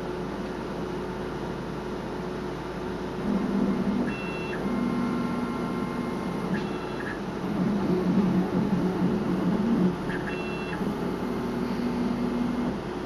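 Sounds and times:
motors whining: 3.2 - 12.8.

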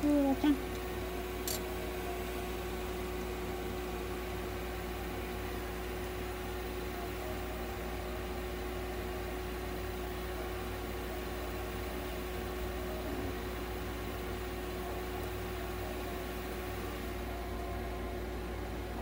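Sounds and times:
mechanical hum with steady tone: 0.0 - 19.0.

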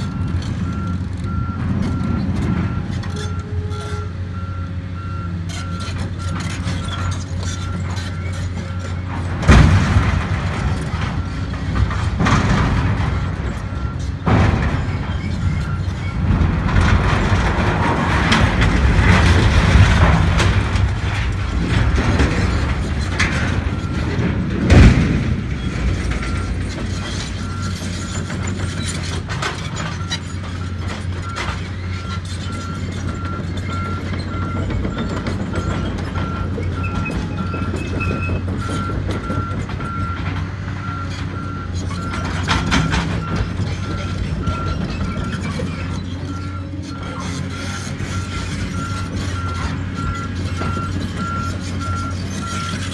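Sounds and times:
excavator diesel engine running: 0.0 - 52.9
loud metal noise: 6.5 - 37.8
heavy structure crash: 9.0 - 31.8
reversing alarm beeping: 30.0 - 45.6, 46.2 - 52.9.

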